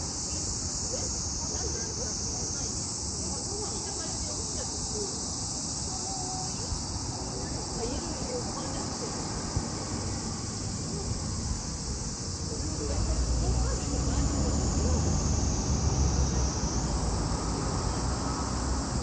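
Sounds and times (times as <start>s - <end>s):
insects chirring: 0.0s - 19.0s.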